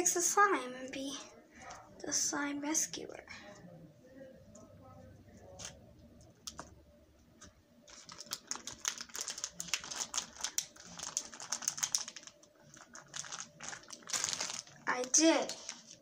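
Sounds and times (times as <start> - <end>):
plastic bag crinkling: 7.9 - 16.0.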